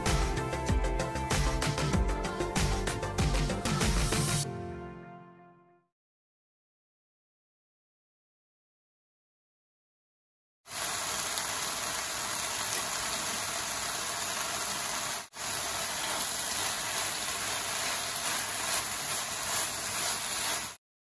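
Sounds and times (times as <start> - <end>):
food sizzling in frying pan: 10.7 - 20.8.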